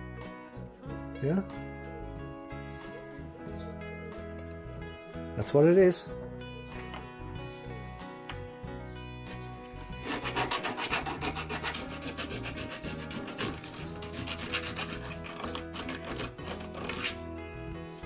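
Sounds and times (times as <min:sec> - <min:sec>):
hand file rasping on metal: 0:09.9 - 0:17.3.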